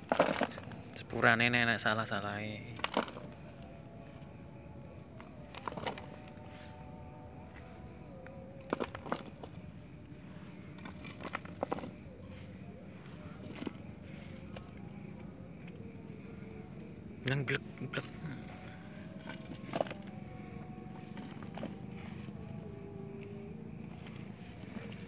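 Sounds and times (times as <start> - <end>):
soil scraping over stone: 0.0 - 1.1
crickets chirping: 0.0 - 25.0.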